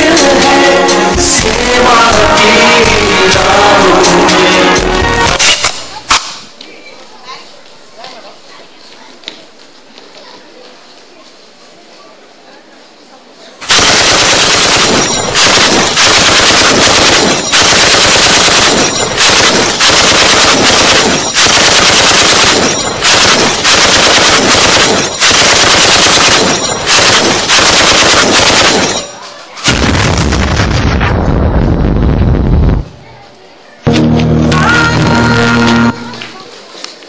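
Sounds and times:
machine-gun fire over speakers: 0:13.6 - 0:32.8
deep heavy sound: 0:29.7 - 0:33.2, 0:33.9 - 0:36.4.

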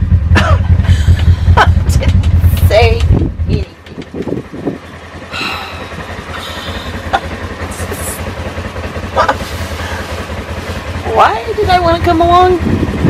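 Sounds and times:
utility vehicle engine rumbling: 0:00.0 - 0:13.0.

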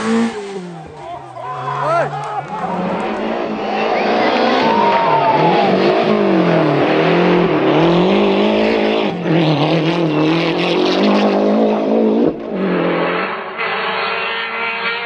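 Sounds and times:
rally car engine revving: 0:00.0 - 0:15.0.

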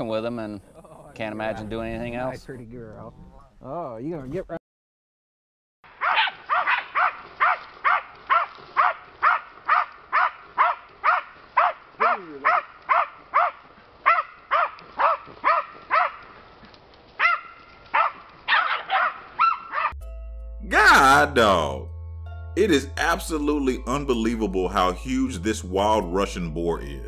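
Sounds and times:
small dogs barking: 0:06.0 - 0:16.4, 0:17.2 - 0:20.0.

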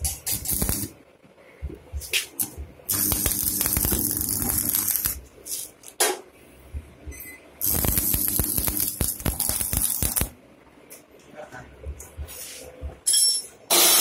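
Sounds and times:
welding arc crackling: 0:00.0 - 0:01.0, 0:02.0 - 0:05.9, 0:07.6 - 0:10.4, 0:13.7 - 0:14.0
faint hum: 0:00.0 - 0:13.7.

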